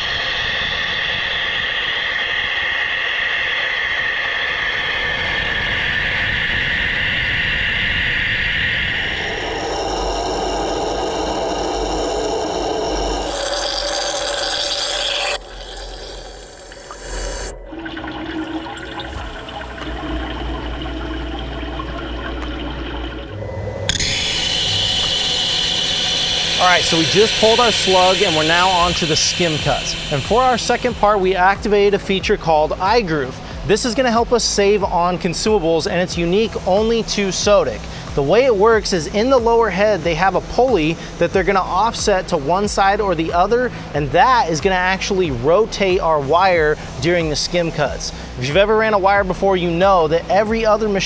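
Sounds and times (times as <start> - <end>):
spark erosion hiss in water: 0.0 - 17.5, 23.9 - 33.4.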